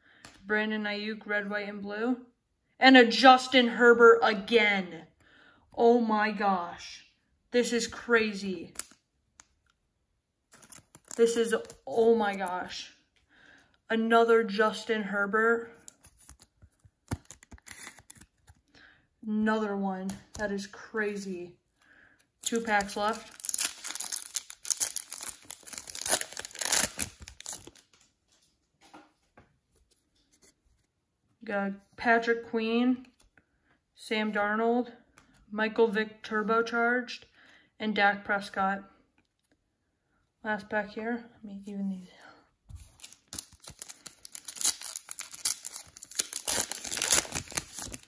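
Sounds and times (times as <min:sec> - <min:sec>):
foil wrapper crinkling and tearing: 0:10.5 - 0:12.4, 0:15.8 - 0:18.6, 0:22.4 - 0:28.0, 0:42.8 - 0:48.0
cards rustling: 0:10.5 - 0:12.7, 0:15.8 - 0:18.7, 0:22.4 - 0:28.5, 0:42.7 - 0:48.0.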